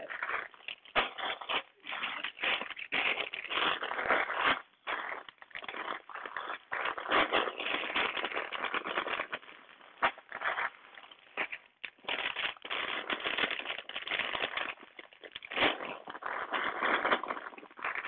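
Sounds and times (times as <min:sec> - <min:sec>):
plastic bricks rattling: 0:00.0 - 0:06.4, 0:10.0 - 0:18.0
plastic bags crinkling: 0:00.0 - 0:18.0.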